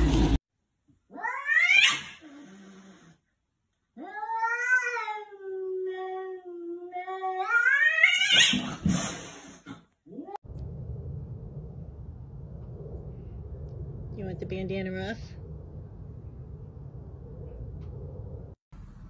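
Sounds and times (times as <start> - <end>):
cat yowling: 1.1 - 2.2, 4.0 - 8.7.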